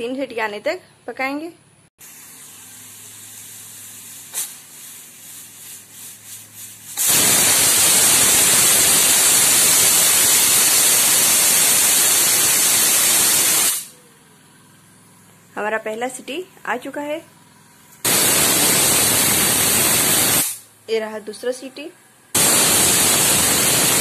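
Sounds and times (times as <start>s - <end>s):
pressure cooker steam hissing: 2.0s - 14.0s, 18.0s - 20.7s, 22.4s - 24.0s.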